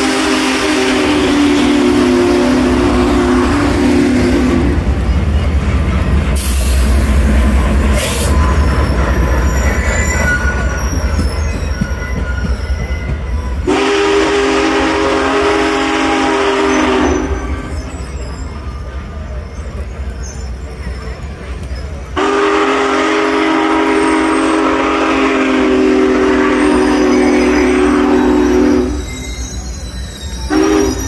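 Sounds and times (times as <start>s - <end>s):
locomotive chime whistle: 0.0s - 5.6s, 7.9s - 31.0s
steam train rumbling by: 0.0s - 31.0s
steam hisses: 6.3s - 11.4s.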